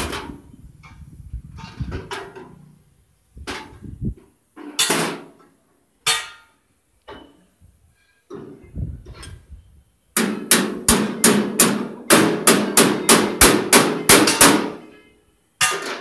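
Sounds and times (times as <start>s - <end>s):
metal tools striking metal box: 10.2s - 14.8s, 15.6s - 16.0s.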